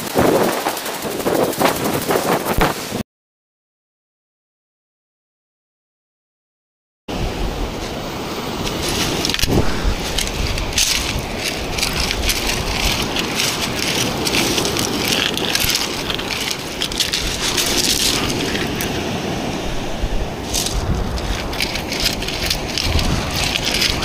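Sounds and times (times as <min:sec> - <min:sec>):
wind rumbling on microphone: 0:00.0 - 0:03.0, 0:07.1 - 0:24.0
pebbles crunching and clattering: 0:08.5 - 0:19.2, 0:20.4 - 0:24.0.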